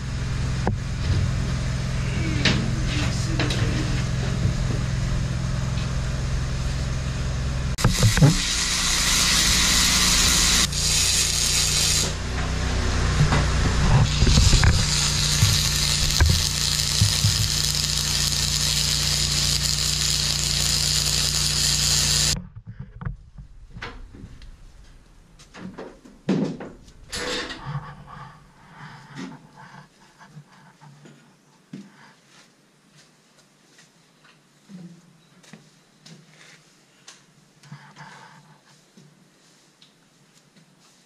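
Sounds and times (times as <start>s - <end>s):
machine hum: 0.0s - 25.4s
power grinder hissing: 5.5s - 22.4s.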